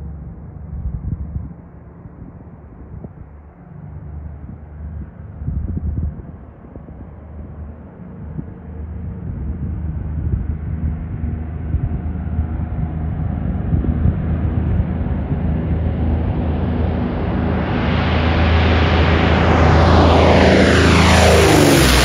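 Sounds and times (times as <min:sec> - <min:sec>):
propeller aircraft engines drone: 0:00.0 - 0:22.0.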